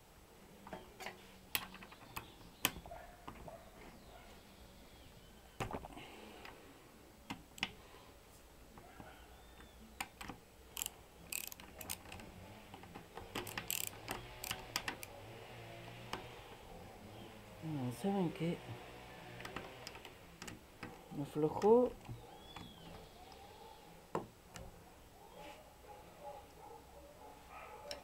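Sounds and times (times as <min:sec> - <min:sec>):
socket wrench clicking on nuts: 0:10.0 - 0:15.1.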